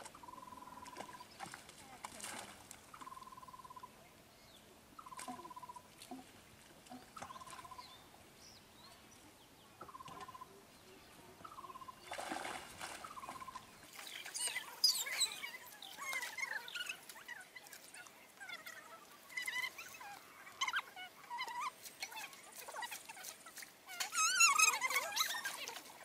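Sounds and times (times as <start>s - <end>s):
chirping birdsong: 0.1s - 1.6s, 2.9s - 5.9s, 7.0s - 12.3s, 13.0s - 17.1s.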